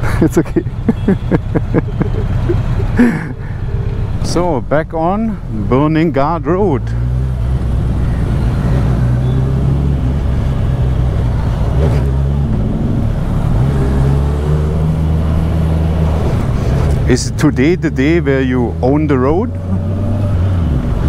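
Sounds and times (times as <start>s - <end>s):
motorcycle engine running: 0.6s - 5.5s.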